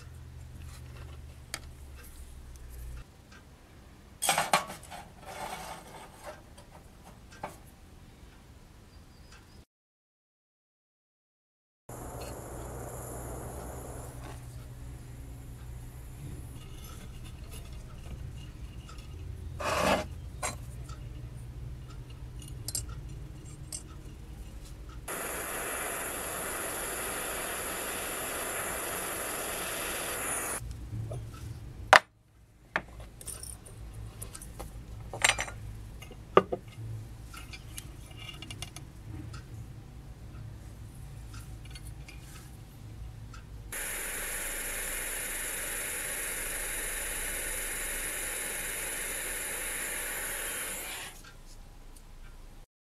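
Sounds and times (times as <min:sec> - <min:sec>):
soldering torch hissing: 0:11.9 - 0:16.9, 0:25.1 - 0:30.6, 0:43.8 - 0:51.2
steady hiss: 0:11.9 - 0:18.0, 0:25.1 - 0:30.6, 0:43.8 - 0:51.3.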